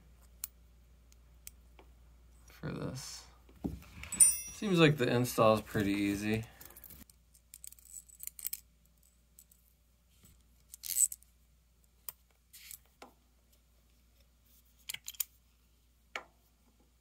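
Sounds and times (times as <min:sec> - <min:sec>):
metal tools clinking: 0:04.0 - 0:07.0.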